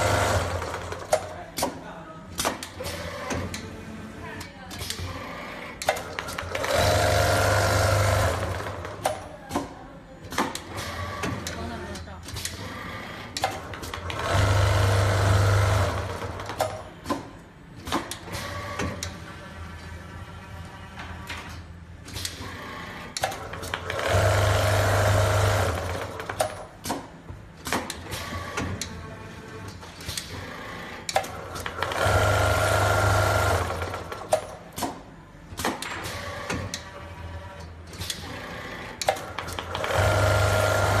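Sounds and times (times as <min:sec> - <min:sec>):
machine clicks and clunks: 0:00.2 - 0:03.8, 0:05.7 - 0:06.9, 0:07.9 - 0:19.2, 0:20.9 - 0:29.0, 0:29.6 - 0:41.0
sewing machine stitching: 0:31.2 - 0:34.3, 0:38.2 - 0:41.0
sewing machine fast stitching: 0:39.5 - 0:41.0.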